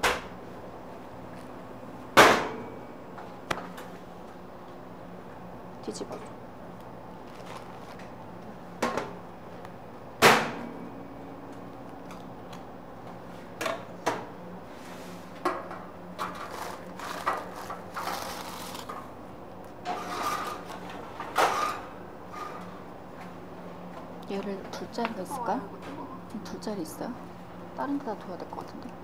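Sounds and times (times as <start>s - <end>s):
steady low hum: 0.0s - 29.0s
baking pans and utensils clattering: 19.8s - 22.7s.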